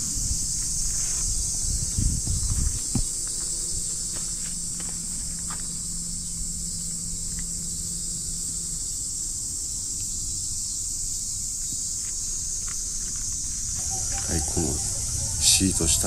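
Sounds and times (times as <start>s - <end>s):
insects droning: 0.0s - 16.0s
faint low hum: 12.4s - 16.0s.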